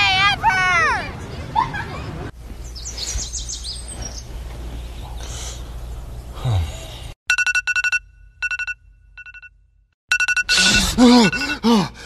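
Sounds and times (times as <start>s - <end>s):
bird chirps: 2.6s - 5.3s
phone alarm beeping: 7.3s - 11.6s.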